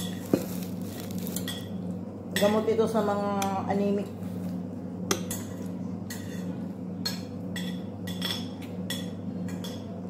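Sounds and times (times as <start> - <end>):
steady low hum: 0.0 - 10.0
spoon clinking against ceramic bowl: 1.4 - 1.8, 5.1 - 9.9.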